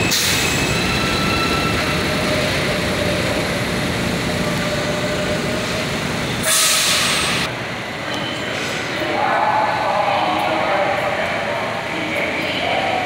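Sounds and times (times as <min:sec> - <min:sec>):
subway train rumbling: 0:00.0 - 0:13.0
air hissing burst: 0:06.4 - 0:07.4.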